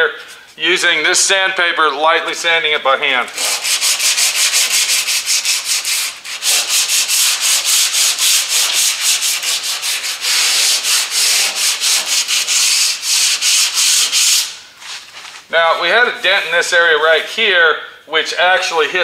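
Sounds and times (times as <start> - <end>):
sandpaper scratching back and forth: 3.2 - 15.5.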